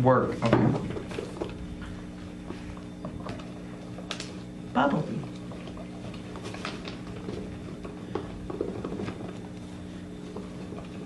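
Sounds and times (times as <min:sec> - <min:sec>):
low electrical hum: 0:00.0 - 0:11.0
sticks stirring sticky slime: 0:01.0 - 0:11.0.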